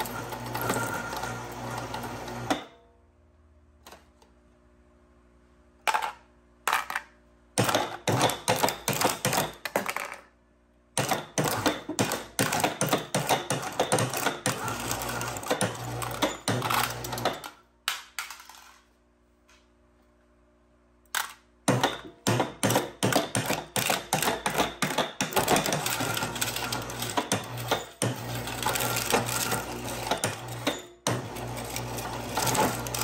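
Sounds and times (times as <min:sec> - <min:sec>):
shredder crushing metal cans: 0:00.0 - 0:02.7, 0:07.6 - 0:10.2, 0:11.0 - 0:18.8, 0:21.2 - 0:33.0.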